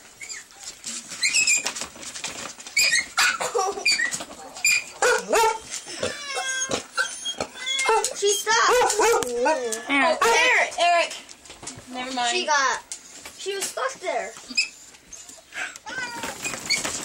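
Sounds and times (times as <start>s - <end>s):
dog whimpering and yelping: 0.2s - 1.8s, 2.8s - 10.0s, 14.5s - 17.0s.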